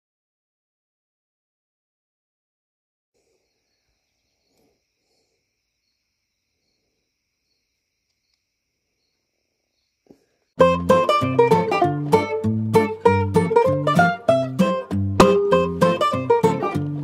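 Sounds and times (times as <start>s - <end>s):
insects chirping: 3.2s - 10.6s
faint click: 8.1s - 8.5s.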